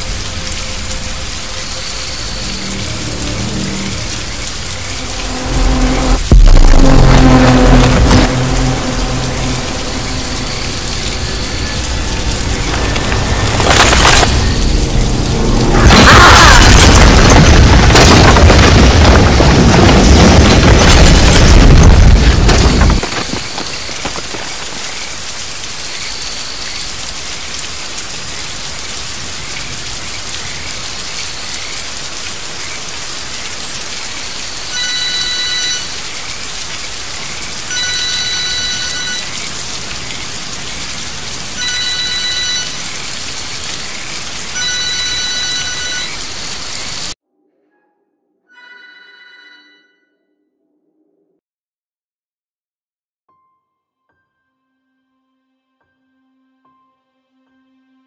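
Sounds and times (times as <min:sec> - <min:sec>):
heavy rain: 0:00.0 - 0:47.2
loud low rumble: 0:02.6 - 0:13.2
mobile phone ringtone: 0:34.8 - 0:35.9, 0:44.6 - 0:46.1, 0:48.5 - 0:50.1.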